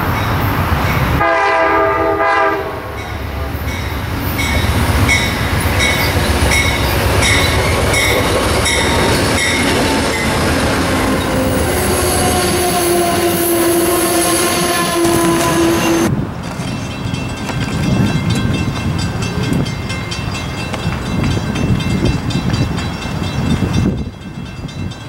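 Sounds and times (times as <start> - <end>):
train cars rumbling past: 0.0 - 25.0
train horn blast: 1.2 - 3.1, 10.9 - 16.1
locomotive bell ringing: 2.9 - 25.0
train wheel squeal: 3.6 - 16.1.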